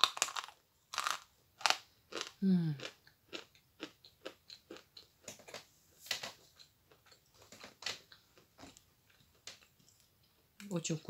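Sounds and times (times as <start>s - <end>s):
chewing crunches: 0.0s - 5.6s.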